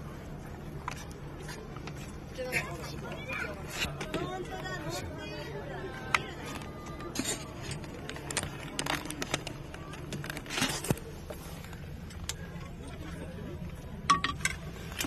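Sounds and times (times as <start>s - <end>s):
faint background voices: 0.0s - 15.0s
low steady hum: 0.0s - 15.0s
knocks and clicks of handling gear: 14.0s - 15.0s.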